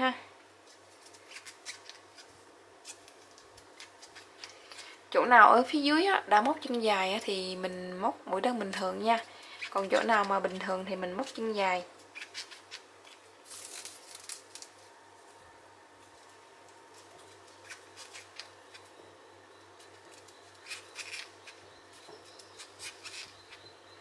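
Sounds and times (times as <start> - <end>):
crochet hook scratching yarn: 22.3 - 23.6.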